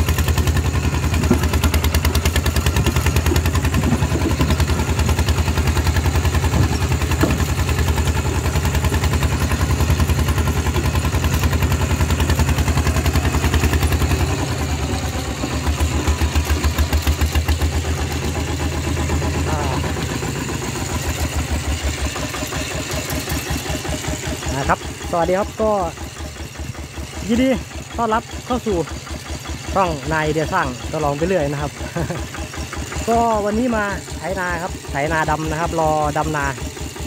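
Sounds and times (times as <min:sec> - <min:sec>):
diesel engine thudding: 0:00.0 - 0:25.3.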